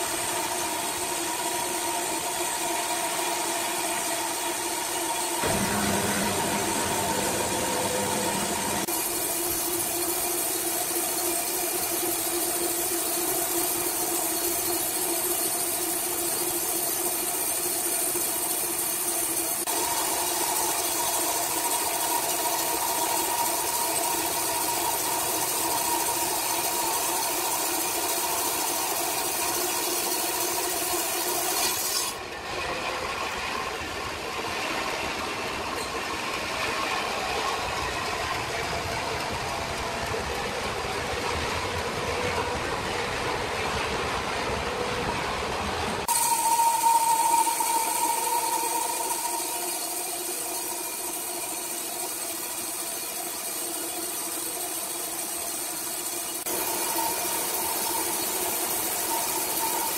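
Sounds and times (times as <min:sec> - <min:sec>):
band sawmill cutting log: 0:00.0 - 0:35.6, 0:46.0 - 0:59.9.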